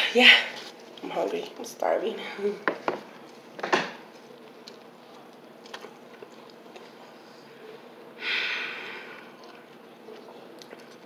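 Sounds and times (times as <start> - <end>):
soft chewing clicks: 4.2 - 7.2, 9.2 - 11.0.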